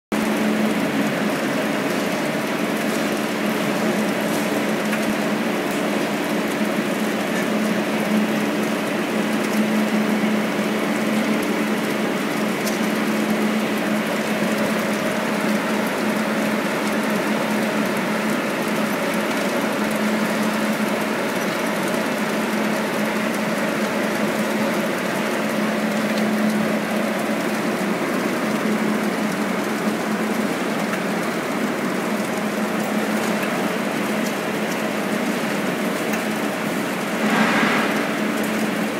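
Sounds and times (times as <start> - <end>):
conveyor machinery running: 0.2 - 38.9.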